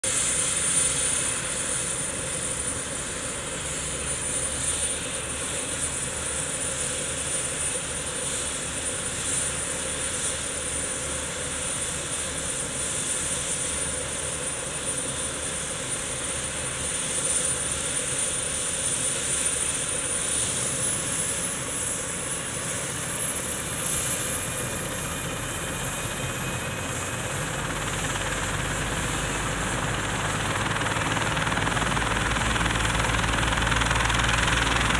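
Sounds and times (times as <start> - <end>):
helicopter rotor and engine rush: 0.0 - 34.9
high turbine whine: 0.0 - 34.9.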